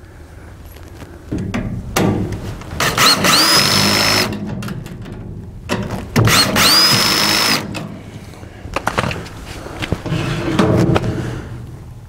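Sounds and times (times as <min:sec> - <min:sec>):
cordless drill whining: 0:02.8 - 0:04.4, 0:06.3 - 0:07.8.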